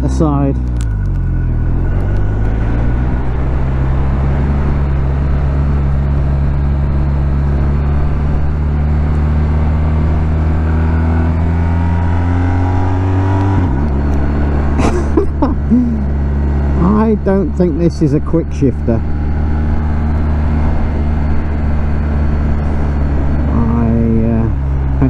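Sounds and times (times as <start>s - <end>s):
motorcycle engine accelerating: 0.0s - 25.0s
wind noise in helmet: 19.2s - 23.5s.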